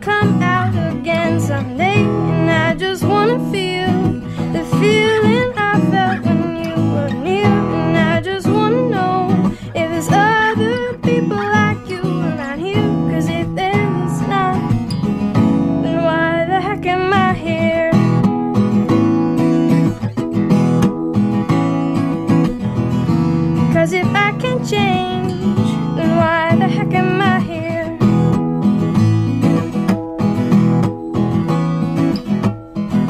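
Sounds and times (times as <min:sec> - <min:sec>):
woman singing with vibrato: 0:00.0 - 0:18.3, 0:23.6 - 0:28.3
strummed acoustic string instrument: 0:00.0 - 0:33.0.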